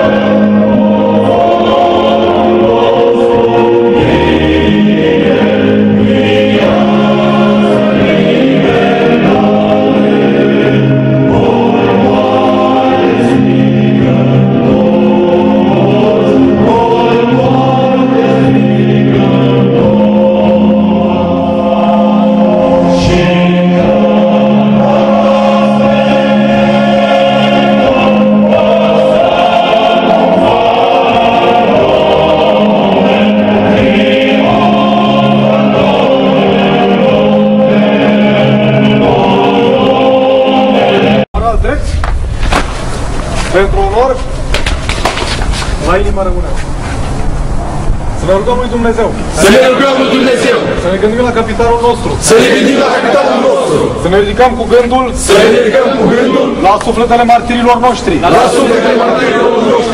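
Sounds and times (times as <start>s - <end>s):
choir singing slow hymn: 0.0s - 41.3s, 49.3s - 50.9s, 52.2s - 54.1s, 55.2s - 56.7s, 58.0s - 59.9s.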